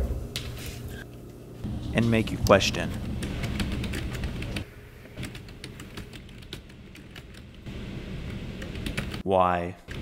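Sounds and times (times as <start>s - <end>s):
low background hum: 0.0s - 10.0s.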